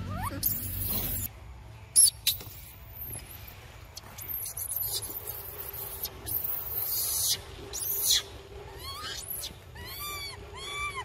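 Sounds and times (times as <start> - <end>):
macaques squeaking: 0.0 - 1.3, 2.0 - 11.0
shrill monkey squeal: 0.0 - 1.3, 4.2 - 11.0.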